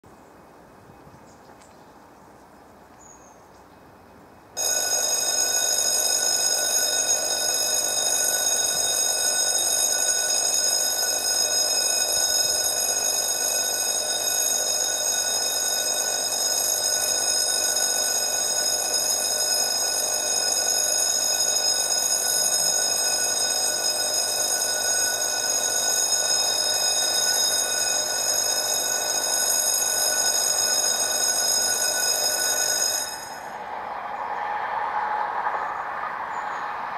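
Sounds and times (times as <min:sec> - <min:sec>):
level crossing warning bell: 0:04.6 - 0:33.8.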